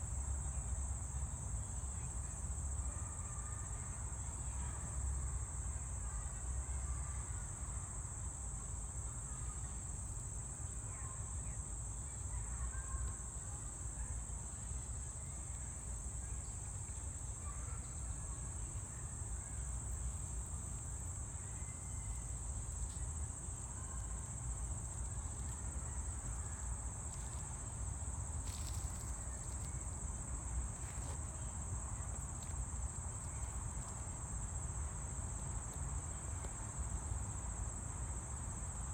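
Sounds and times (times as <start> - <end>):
insects buzzing: 8.7 - 38.9.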